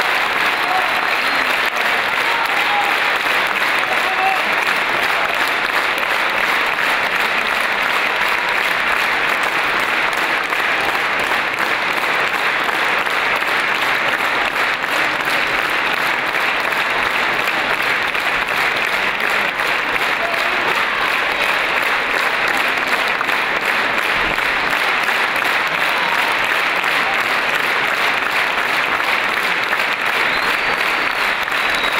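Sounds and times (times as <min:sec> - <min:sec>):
large audience applauding: 0:00.0 - 0:31.9.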